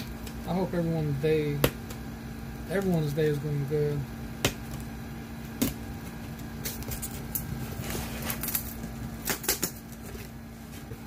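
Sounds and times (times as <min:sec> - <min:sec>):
steady low hum: 0:00.0 - 0:11.0
cardboard packaging rustling: 0:05.9 - 0:11.0.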